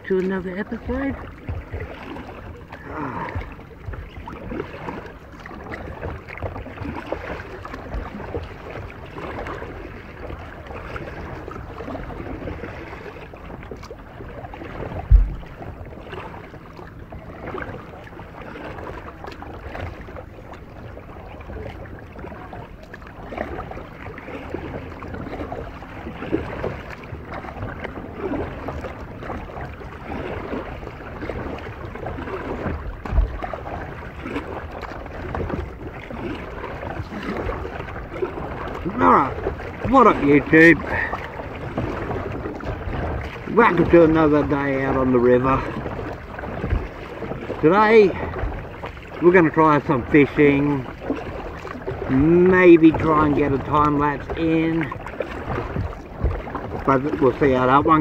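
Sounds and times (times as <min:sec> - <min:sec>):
paddle splashing in water: 0:00.0 - 0:58.0
wind noise: 0:15.0 - 0:15.6
short low thumps: 0:15.0 - 0:15.7.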